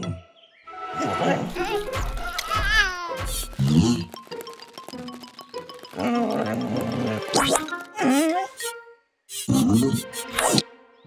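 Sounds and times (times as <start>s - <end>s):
cartoon music with ticking beat: 1.9s - 10.6s.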